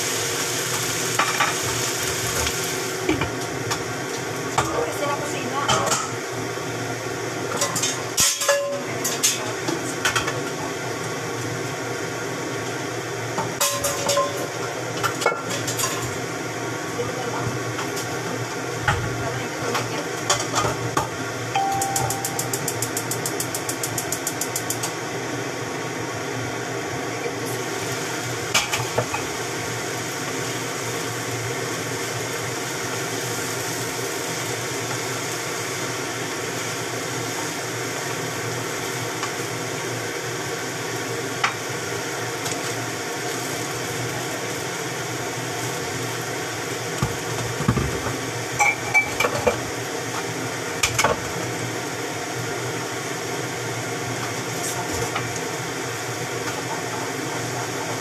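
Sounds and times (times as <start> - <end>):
cabbage sizzling in a wok: 0.0 - 58.0
short beep: 21.6 - 22.8.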